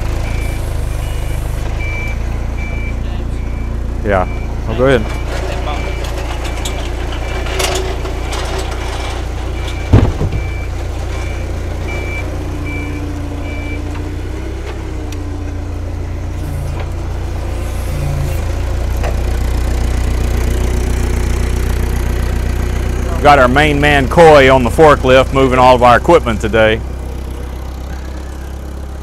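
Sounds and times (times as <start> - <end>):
forklift engine running: 0.0 - 29.0
reverse alarm beeping: 0.2 - 8.6, 9.6 - 13.9
loud clunk: 5.1 - 11.3.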